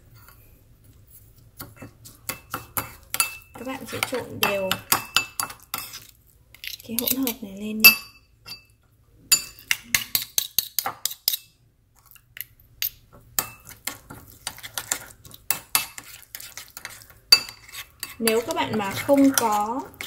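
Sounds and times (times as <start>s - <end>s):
metal spoon scraping ceramic bowl: 1.8s - 8.7s, 13.4s - 20.0s.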